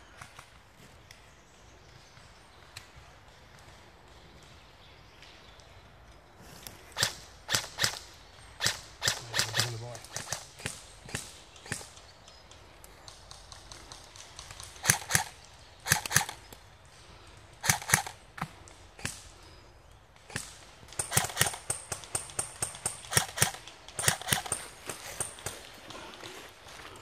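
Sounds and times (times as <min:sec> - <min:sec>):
footsteps on forest floor: 0:00.0 - 0:19.6, 0:23.2 - 0:27.0.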